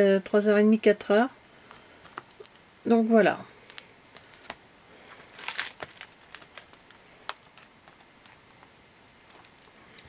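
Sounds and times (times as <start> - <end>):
plastic packaging crinkling: 3.6 - 10.0.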